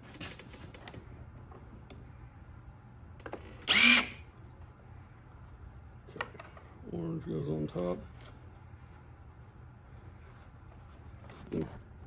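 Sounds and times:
motor and gearbox whirring: 3.2s - 4.2s.

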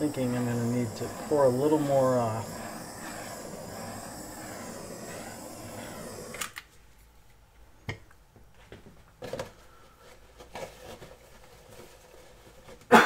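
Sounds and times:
torch flame hissing: 0.0s - 6.6s.

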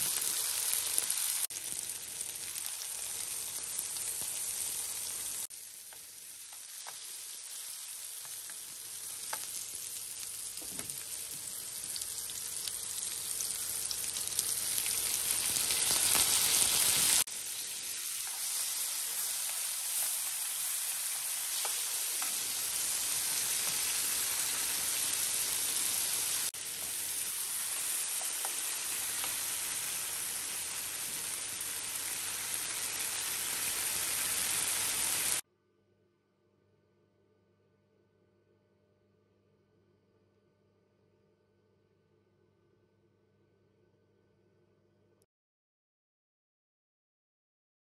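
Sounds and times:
vegetables sizzling in oil: 0.0s - 35.4s.

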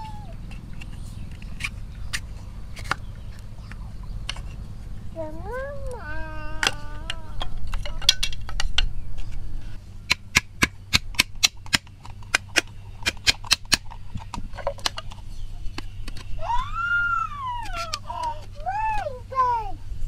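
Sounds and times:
hammer striking blade in bamboo: 10.1s - 14.0s.

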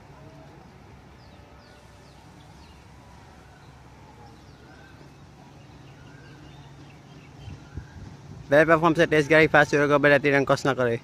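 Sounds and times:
faint bird chirps: 1.1s - 8.3s.

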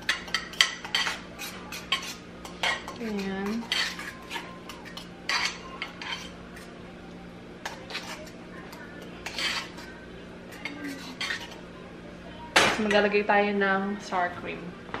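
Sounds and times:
metal utensil scraping saucepan: 0.0s - 6.8s, 7.6s - 11.6s.

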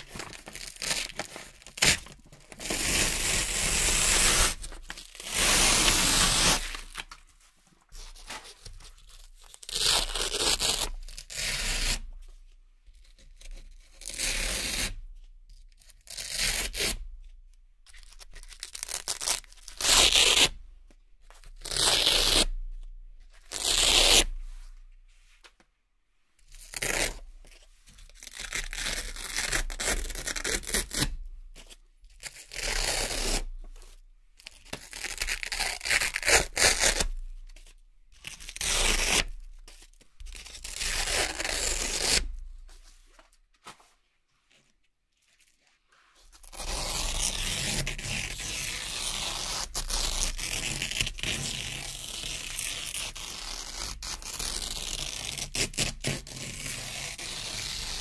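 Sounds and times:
velcro ripping apart: 0.0s - 7.1s, 18.4s - 20.5s, 23.5s - 24.3s, 34.8s - 37.2s, 46.4s - 58.0s.

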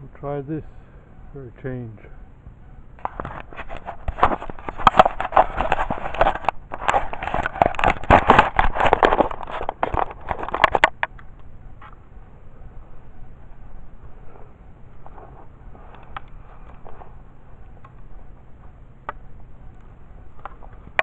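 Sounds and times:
camera handling noise: 3.0s - 12.0s, 15.0s - 18.1s.

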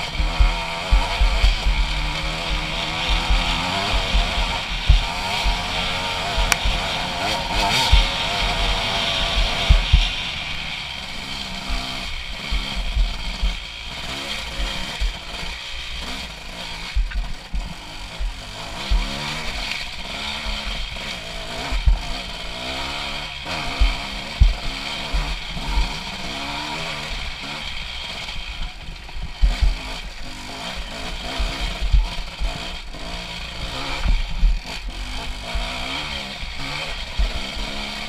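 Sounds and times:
dirt bike engine revving: 0.0s - 38.0s.

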